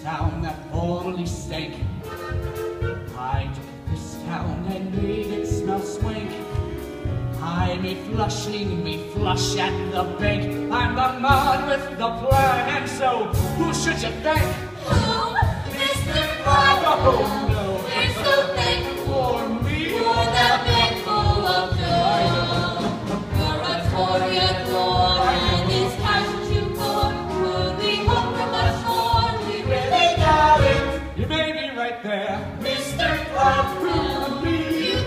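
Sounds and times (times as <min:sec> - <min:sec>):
band accompaniment: 0:00.0 - 0:35.0
ensemble singing in chorus: 0:14.6 - 0:31.3, 0:32.1 - 0:35.0.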